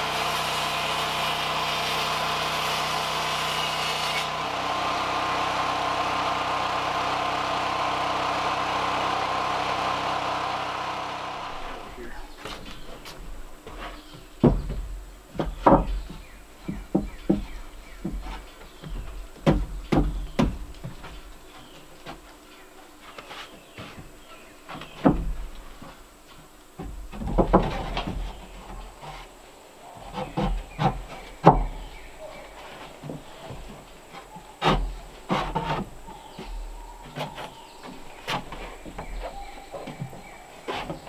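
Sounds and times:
wooden boards knocking: 12.4 - 22.2, 24.7 - 26.0, 26.8 - 29.2, 30.0 - 41.0.

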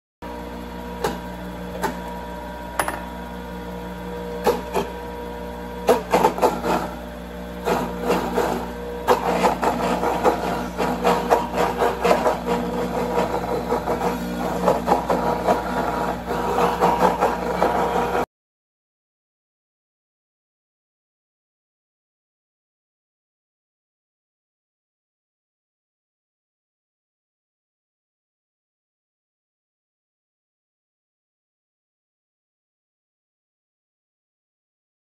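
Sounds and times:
juicer motor hum: 0.2 - 18.3.

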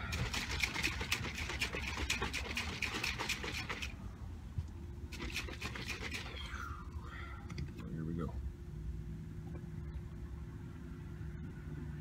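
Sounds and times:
shaker bottle rattling and sloshing: 0.0 - 4.0, 5.1 - 6.5.

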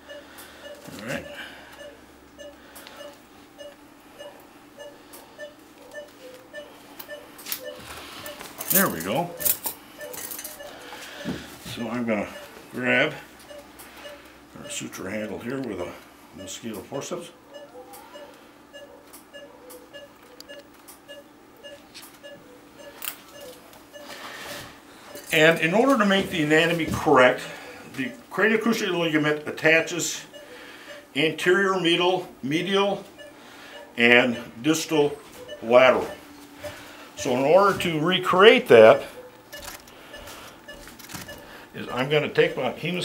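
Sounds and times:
patient monitor beeping: 0.0 - 43.0.

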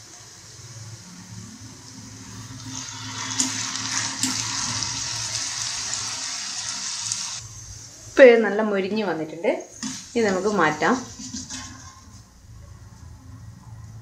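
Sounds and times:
potato deep-frying in hot oil: 0.0 - 8.2, 9.7 - 12.2
slotted spoon stirring oil: 9.8 - 12.2.

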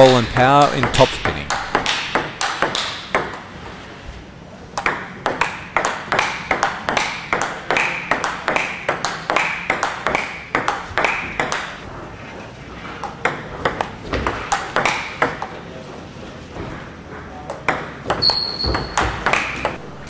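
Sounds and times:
table tennis ball pinging: 0.0 - 3.5, 4.7 - 11.8, 13.0 - 15.6, 17.2 - 19.8.

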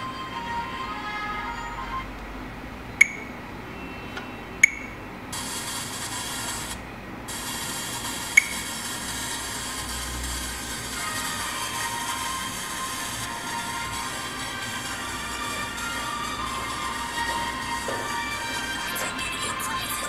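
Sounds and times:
smartphone clicks: 3.0 - 3.3
steady hiss: 5.3 - 20.0.

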